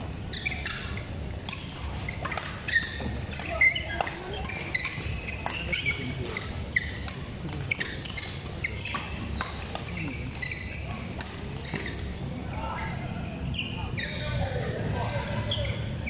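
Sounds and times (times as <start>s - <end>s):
racket hitting shuttlecock: 1.4s - 5.6s, 8.8s - 10.6s
sneaker squeaks on court: 2.0s - 7.1s, 7.7s - 12.1s.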